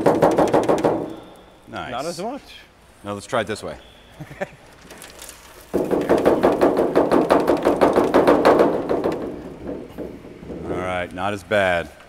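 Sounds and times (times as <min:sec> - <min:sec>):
debris rattling inside hollow metal: 0:05.0 - 0:10.8.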